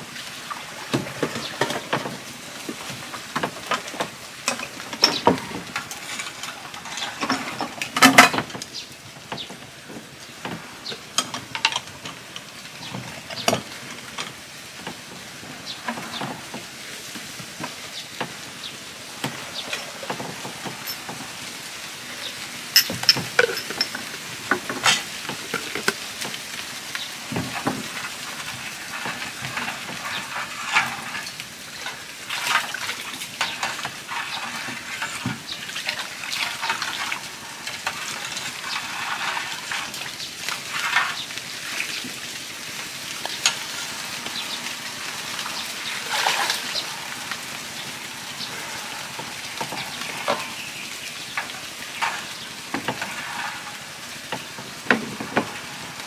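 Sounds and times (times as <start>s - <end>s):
food sizzling in a pan: 12.6s - 32.6s, 33.2s - 56.0s
utensil clinking against metal pan: 22.8s - 24.2s.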